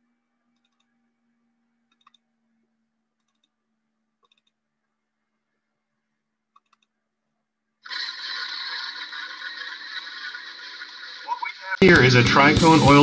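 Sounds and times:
faint computer mouse clicks: 0:00.5 - 0:00.9, 0:01.9 - 0:02.2, 0:03.2 - 0:03.6, 0:04.2 - 0:04.6, 0:06.5 - 0:07.0.

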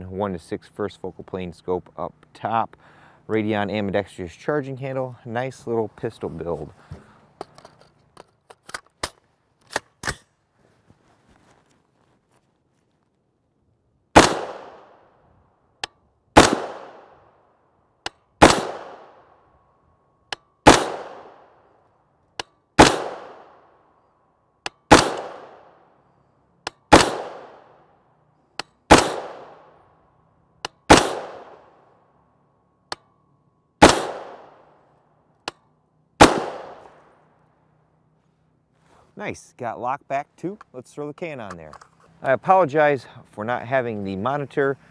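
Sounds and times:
gunshots: 0:14.2 - 0:15.0, 0:16.4 - 0:17.2, 0:18.4 - 0:19.2, 0:20.6 - 0:21.5, 0:22.8 - 0:23.6, 0:24.9 - 0:25.7, 0:26.9 - 0:27.8, 0:28.9 - 0:29.7, 0:30.9 - 0:31.7, 0:33.8 - 0:34.6, 0:36.2 - 0:37.0.

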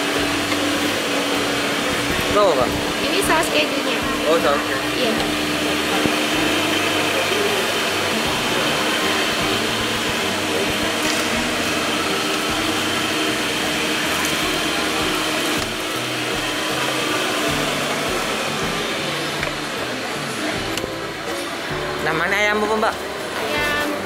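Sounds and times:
fan rushing noise: 0:00.0 - 0:24.0
music playing: 0:00.0 - 0:24.0.

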